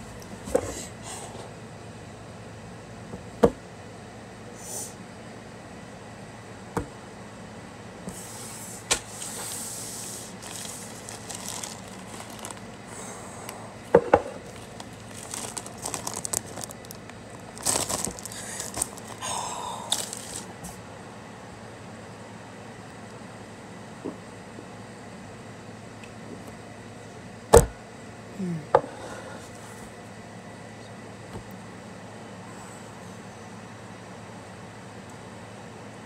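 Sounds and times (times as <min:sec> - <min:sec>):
foil chip bag crinkling: 0:10.3 - 0:12.9, 0:14.4 - 0:20.6.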